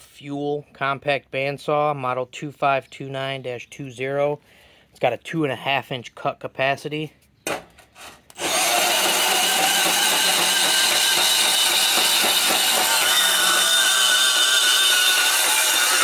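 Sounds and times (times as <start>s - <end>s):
band saw cutting steel tubing: 8.0s - 16.0s.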